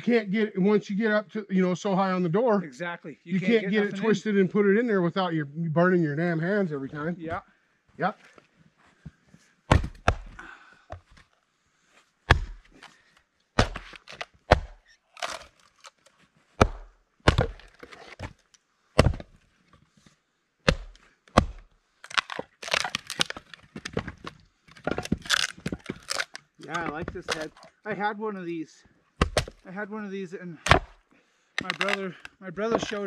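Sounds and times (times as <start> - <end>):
axe chopping wood: 9.7 - 11.2, 12.3 - 12.8, 13.6 - 15.5, 16.6 - 18.4, 19.0 - 19.4, 20.6 - 24.2, 29.2 - 29.6, 30.6 - 31.0.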